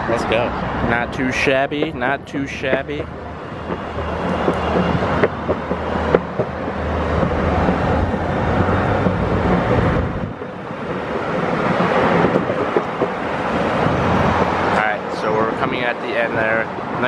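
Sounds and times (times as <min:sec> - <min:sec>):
wind on microphone: 0:00.0 - 0:15.2
skateboard wheels rumbling on concrete: 0:01.7 - 0:14.8
sharp clicks: 0:02.6 - 0:08.2.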